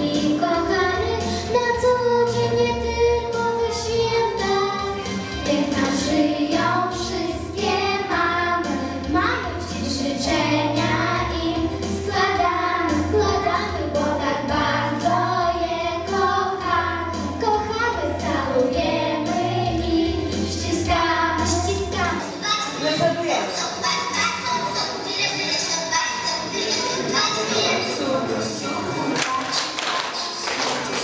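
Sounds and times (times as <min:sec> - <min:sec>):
girls singing through loudspeaker: 0:00.0 - 0:23.0.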